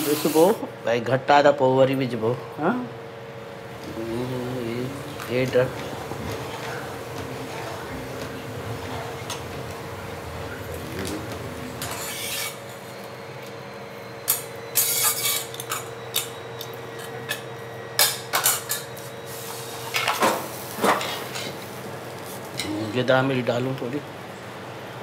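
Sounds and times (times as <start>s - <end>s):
steady low hum: 0.0s - 25.0s
soft stirring noise: 4.5s - 11.9s.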